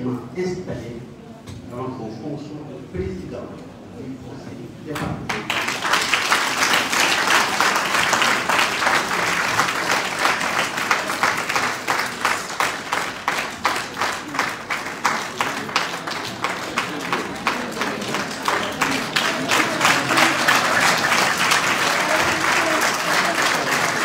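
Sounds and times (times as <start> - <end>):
rhythmic clapping in unison: 4.9 - 24.0
audience applauding: 5.3 - 24.0.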